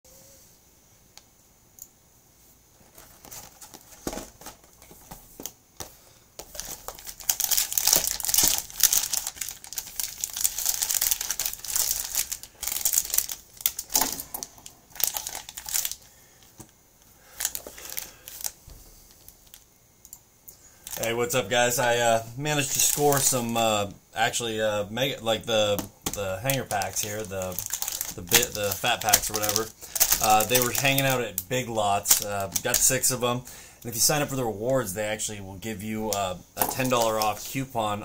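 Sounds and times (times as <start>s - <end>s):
plastic packaging crinkling and tearing: 6.4s - 16.5s, 17.3s - 19.6s, 20.8s - 23.6s, 24.6s - 33.3s, 35.8s - 37.7s.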